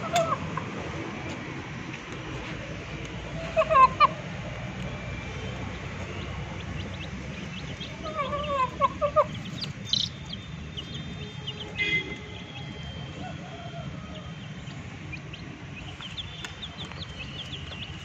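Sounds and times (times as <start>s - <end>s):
chicks peeping: 5.2s - 18.0s
chicken clucking: 6.0s - 10.4s.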